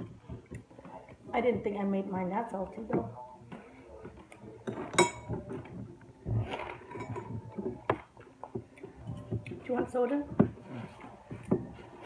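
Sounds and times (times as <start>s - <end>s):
cutlery and dishes clicking: 4.2s - 5.8s
spoon clinking against dish: 4.6s - 5.6s.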